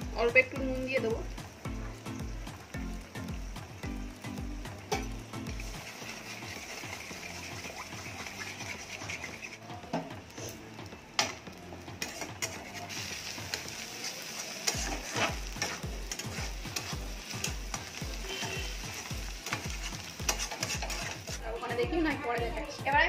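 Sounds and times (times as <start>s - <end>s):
food sizzling: 0.0s - 23.0s
metal spatula scraping a pan: 4.9s - 9.6s, 12.0s - 21.4s.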